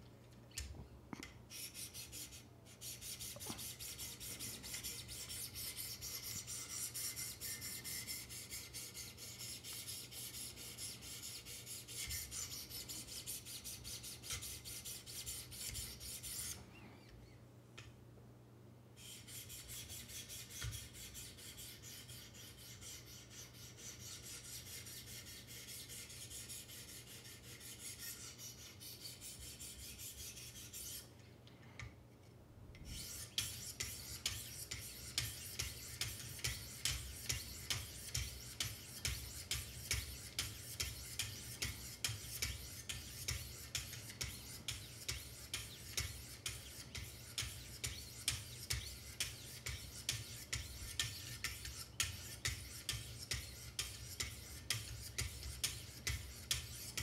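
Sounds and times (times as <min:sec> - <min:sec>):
knife sharpening rasping scrape: 0:32.9 - 0:57.0.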